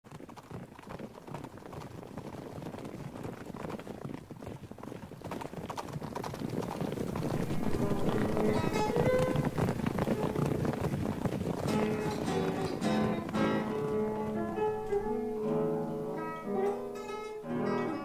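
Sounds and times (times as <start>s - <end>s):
rapid percussive clicks: 5.4s - 15.6s.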